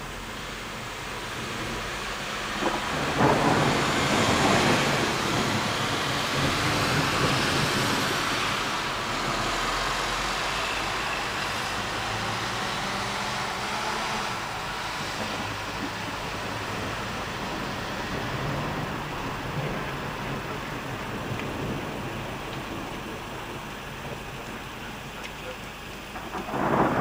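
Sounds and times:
rain hissing: 0.0s - 27.0s
thunderclap rumbling: 0.5s - 27.0s.

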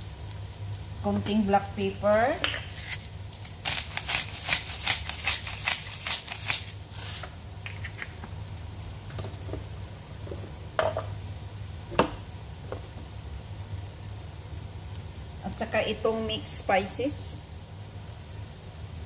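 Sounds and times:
low steady hum: 0.0s - 19.0s
pepper shaker rattling: 2.7s - 8.1s.

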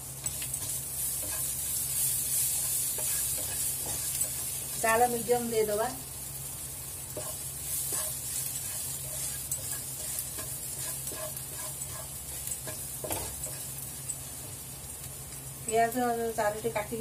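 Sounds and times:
spices sizzling in oil: 0.0s - 17.0s
wooden spatula scraping pan: 7.2s - 13.6s.

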